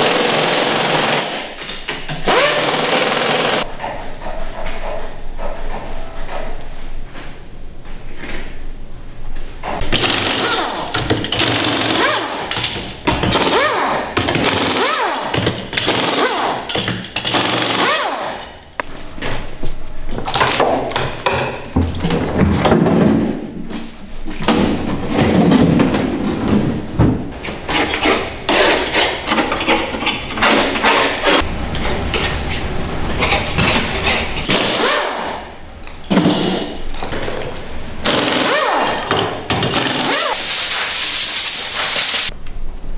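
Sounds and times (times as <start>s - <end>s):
metal tools scraping and knocking: 27.4s - 34.5s.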